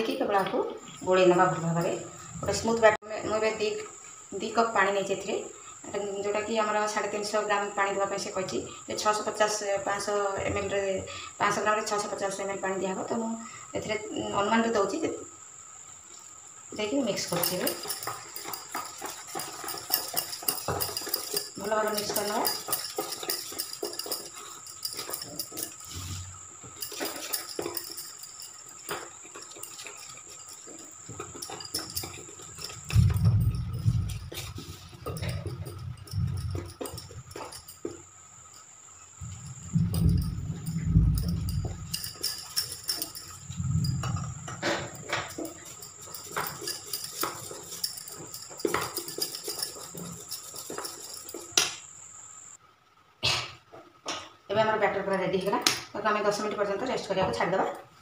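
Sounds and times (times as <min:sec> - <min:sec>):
batter stirred in steel bowl: 0:17.0 - 0:38.0, 0:45.0 - 0:51.6.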